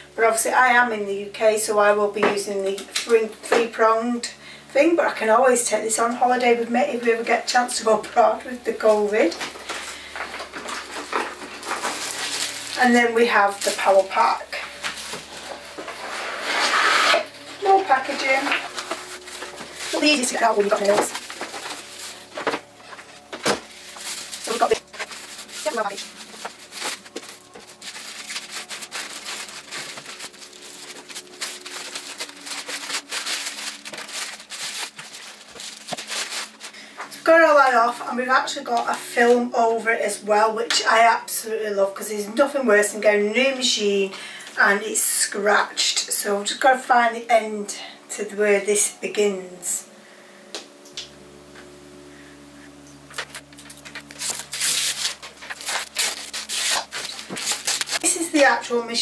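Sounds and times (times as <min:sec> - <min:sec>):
plastic film peeling crackle: 0:07.7 - 0:37.3, 0:52.7 - 0:58.8
plastic bag crinkling: 0:07.8 - 0:37.8, 0:52.7 - 0:59.0.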